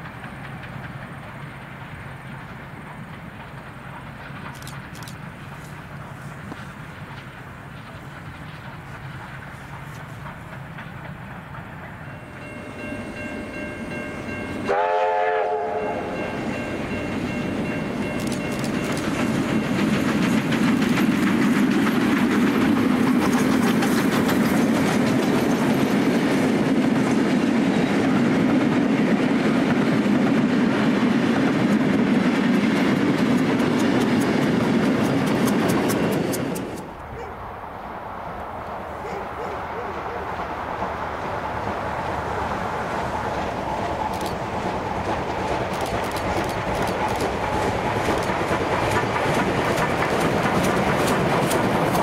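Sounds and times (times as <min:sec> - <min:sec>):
wheels clicking over rail joints: 0:00.0 - 0:14.6, 0:16.2 - 0:37.4, 0:38.4 - 0:52.0
train rumbling past: 0:00.0 - 0:52.0
steam locomotive whistle: 0:14.6 - 0:16.4.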